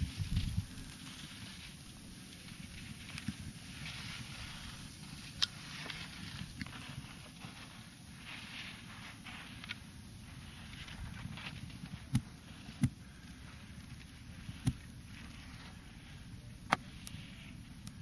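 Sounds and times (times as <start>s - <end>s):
wind rumbling on microphone: 0.0s - 7.6s.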